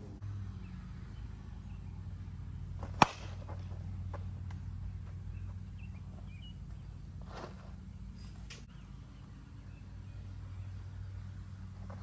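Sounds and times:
bat cracking on softball: 2.7s - 4.8s.

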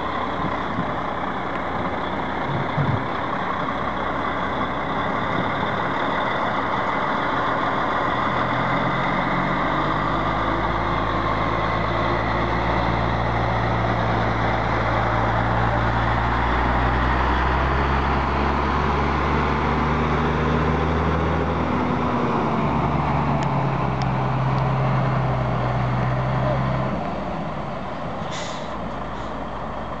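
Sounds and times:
truck diesel engine running: 0.0s - 30.0s
air brakes hissing: 28.2s - 29.4s.

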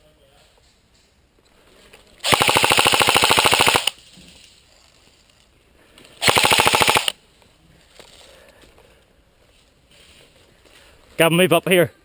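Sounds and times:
airsoft rifle full-auto burst: 2.2s - 4.0s, 6.2s - 7.2s.

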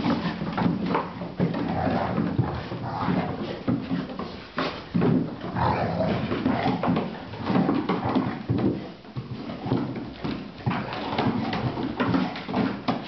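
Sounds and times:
paws scuffling on wooden floor: 0.0s - 13.0s
dogs play vocalising: 1.4s - 4.3s, 5.4s - 8.6s.

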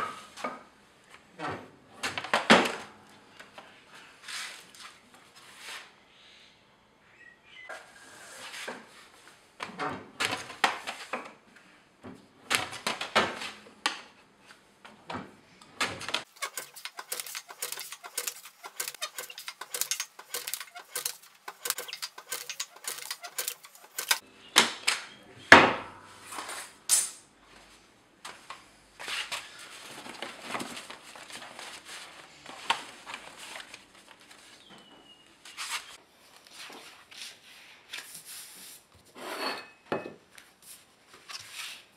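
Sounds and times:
board rustling and sliding: 16.2s - 24.2s.

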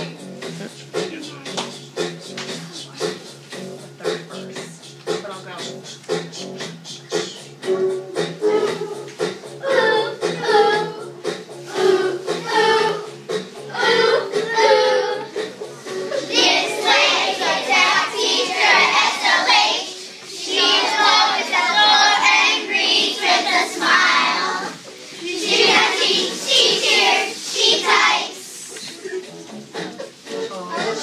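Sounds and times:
children singing: 8.3s - 31.0s.

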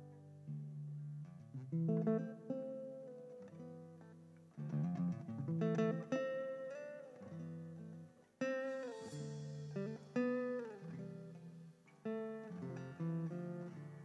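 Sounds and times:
acoustic guitar plucking: 5.0s - 14.0s.

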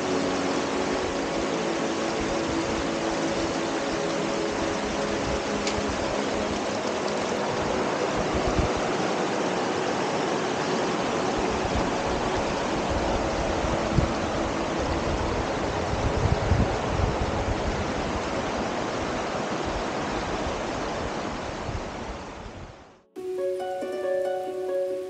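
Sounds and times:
river rushing over rocks: 0.0s - 22.5s
wind bumps on microphone: 11.4s - 22.9s.

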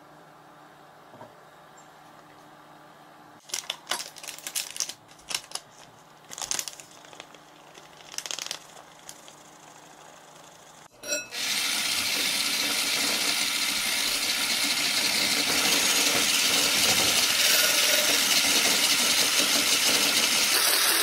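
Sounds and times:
packets crinkling: 3.4s - 9.4s.

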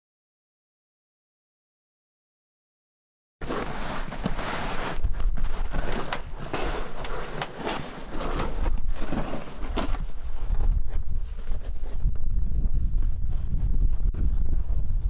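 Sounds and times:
artificial grass rustling and scraping: 3.4s - 12.1s
wind rumble on microphone: 3.6s - 15.0s.

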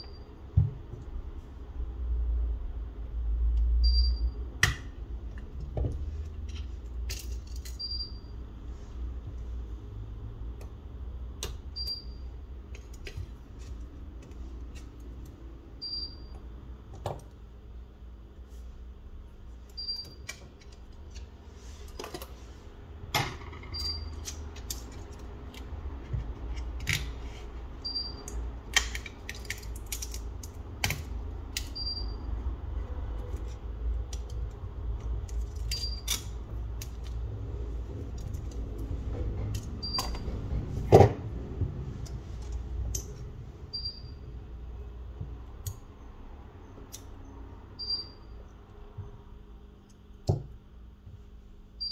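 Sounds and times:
small tools clicking on parts: 28.2s - 31.8s
faint high chirp: 46.0s - 48.5s.

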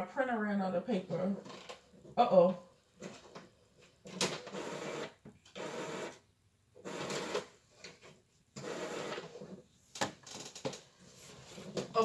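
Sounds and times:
printer mechanism running: 8.6s - 9.2s.

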